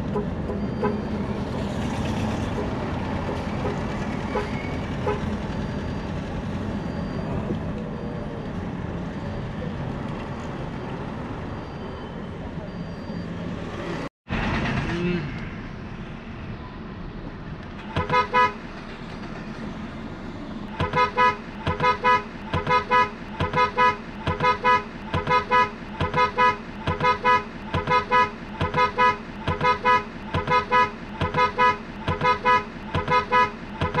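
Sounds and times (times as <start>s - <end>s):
short horn-like beeps: 0.1s - 1.2s, 3.6s - 5.9s, 17.9s - 18.6s, 20.7s - 34.0s.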